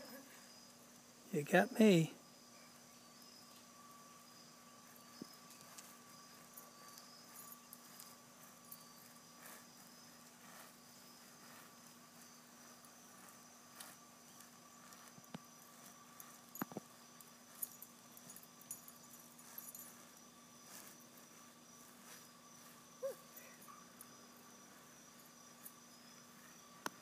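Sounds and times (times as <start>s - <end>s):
insects chirring: 0.0s - 27.0s
faint ticks: 26.8s - 27.0s.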